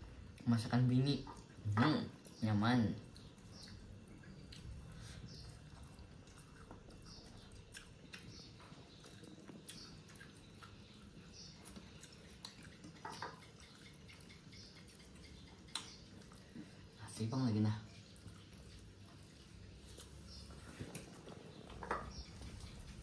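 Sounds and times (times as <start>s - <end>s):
person chewing food: 3.0s - 17.0s, 18.0s - 23.0s.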